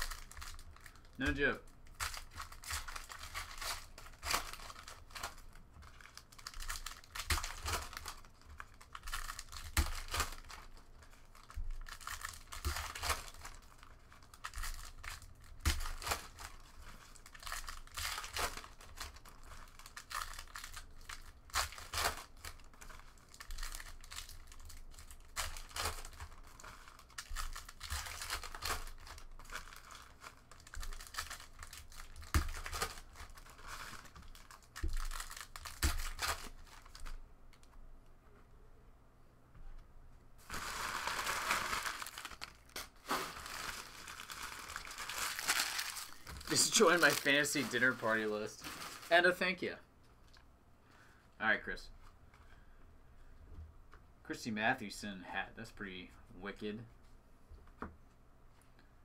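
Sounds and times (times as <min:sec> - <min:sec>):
foil wrappers crinkling and tearing: 0:00.0 - 0:37.2, 0:40.4 - 0:49.7.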